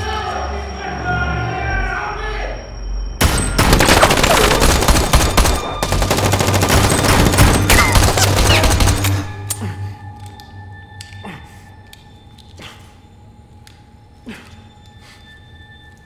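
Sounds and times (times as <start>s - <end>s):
automatic gunfire: 3.2s - 9.3s.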